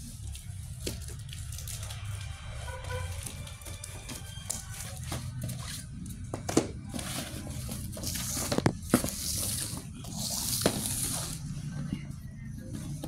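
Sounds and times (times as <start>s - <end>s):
cardboard and tape tearing: 6.9s - 11.6s.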